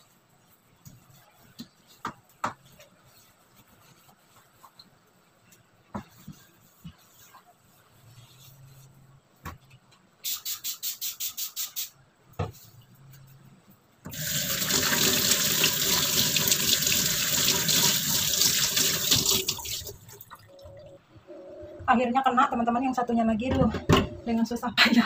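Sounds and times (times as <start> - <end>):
tap water rushing into sink: 14.1 - 19.9.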